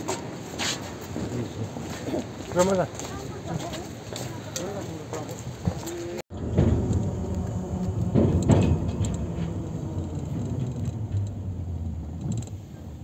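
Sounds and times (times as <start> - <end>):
car road and engine rumble: 5.0 - 13.0
loud knocks and rattles: 6.3 - 12.5.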